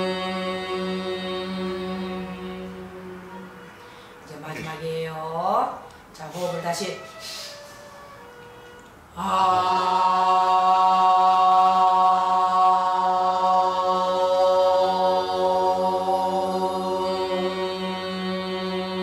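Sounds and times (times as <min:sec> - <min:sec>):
women singing a long vowel: 0:00.0 - 0:05.7, 0:09.1 - 0:19.0.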